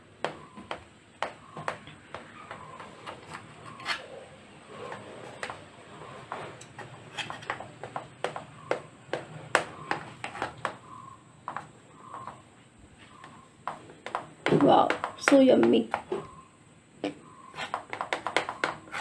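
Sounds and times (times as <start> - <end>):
knife rubbing through cake: 17.5 - 19.0.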